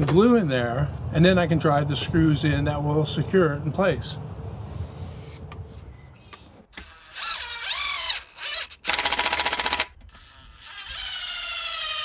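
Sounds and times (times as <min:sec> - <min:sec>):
impact driver motor whirring: 0:06.7 - 0:12.0
impact driver hammering rattle: 0:08.4 - 0:10.1.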